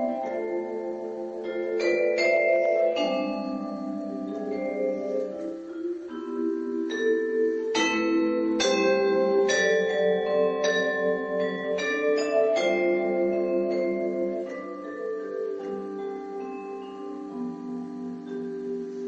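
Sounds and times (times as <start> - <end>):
vibraphone chords: 0.0 - 19.0.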